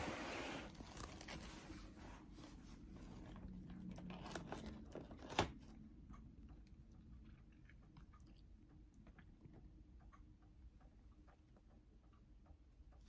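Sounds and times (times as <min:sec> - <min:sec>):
cat nibbling plastic packaging: 0:00.7 - 0:06.0.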